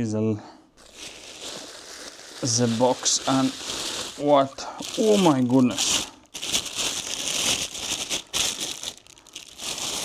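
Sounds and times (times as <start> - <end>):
packaging crinkling: 0.8 - 10.0.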